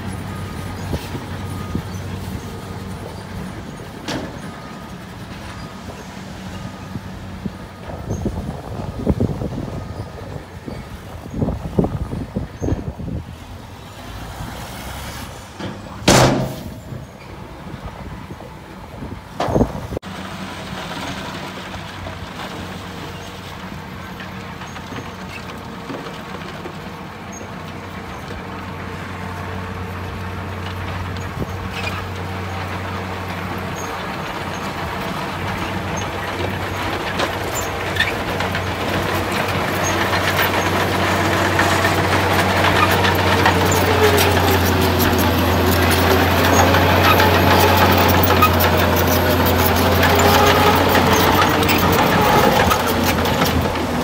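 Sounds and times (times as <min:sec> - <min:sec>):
diesel truck engine running: 0:00.0 - 0:54.0
loud bangs from truck bed: 0:15.7 - 0:17.0.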